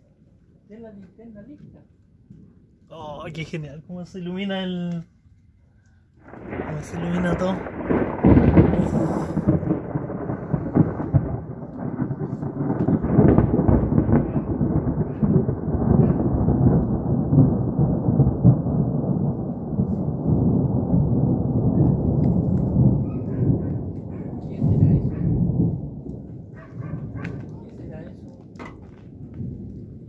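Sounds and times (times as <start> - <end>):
rolling thunder: 6.2 - 30.0.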